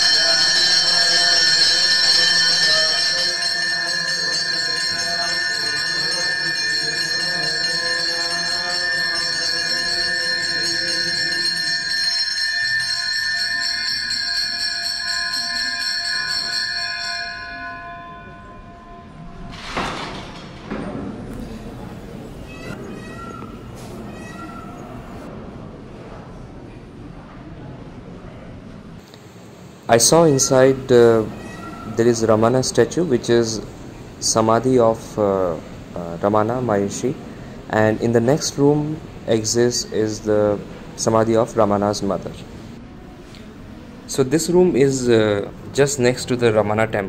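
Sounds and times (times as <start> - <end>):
temple bells ringing: 0.0 - 20.6.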